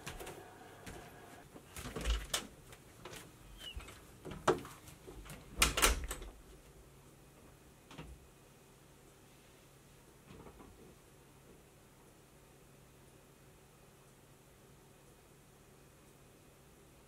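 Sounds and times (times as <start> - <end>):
footsteps: 0.0 - 1.9.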